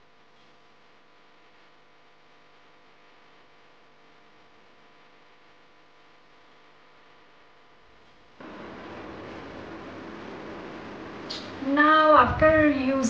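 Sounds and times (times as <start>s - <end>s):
low electrical hum: 0.0s - 13.0s
faint hiss: 8.4s - 12.1s.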